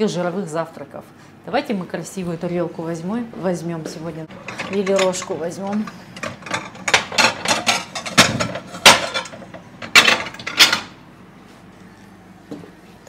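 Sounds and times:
plates and dishes clinking: 4.3s - 11.0s.

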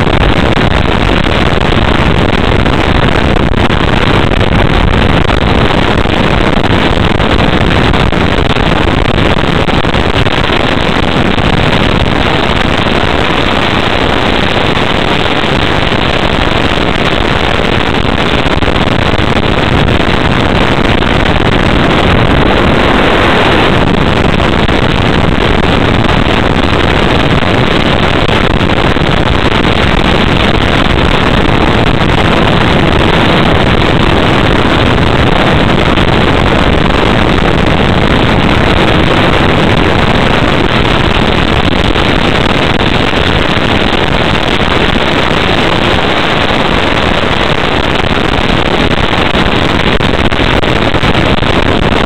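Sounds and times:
rush of airflow: 0.0s - 52.0s
motor noise: 10.0s - 43.4s.

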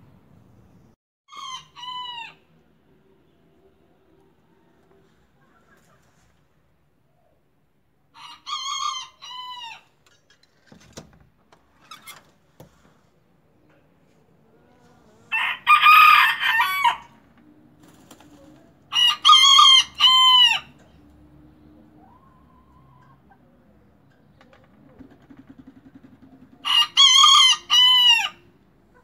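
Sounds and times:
young rooster crowing: 1.3s - 2.5s, 8.1s - 9.9s, 15.3s - 17.2s, 18.9s - 20.8s, 26.6s - 28.4s.

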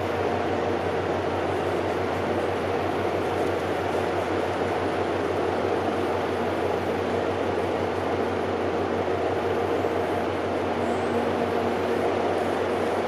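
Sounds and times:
ship machinery drone: 0.0s - 13.0s.

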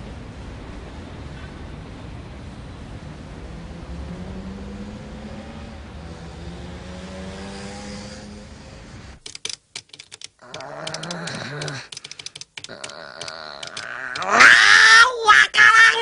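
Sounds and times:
rapid sharp clicks: 9.2s - 14.6s.

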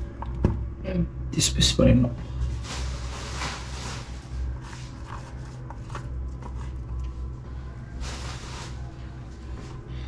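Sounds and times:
steady low hum: 0.0s - 10.0s
soft rustling and handling: 2.4s - 9.9s.

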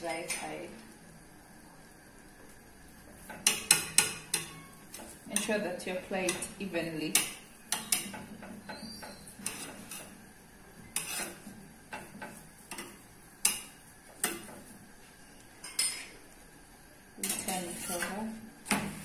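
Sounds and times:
metal spoon scraping a pan: 6.2s - 10.2s, 10.8s - 14.6s, 17.2s - 19.0s.

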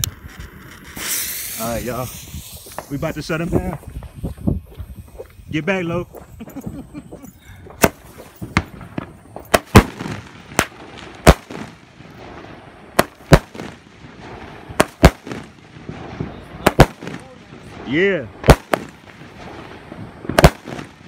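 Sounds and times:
fireworks bangs: 0.0s - 21.0s
fireworks crackle: 0.0s - 21.0s.

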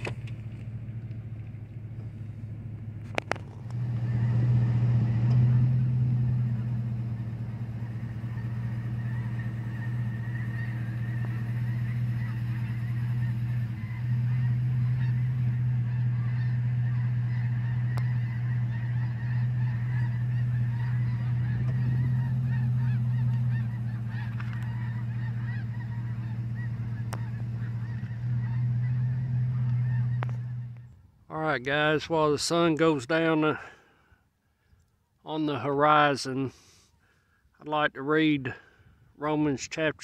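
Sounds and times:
geese honking: 3.1s - 33.8s.

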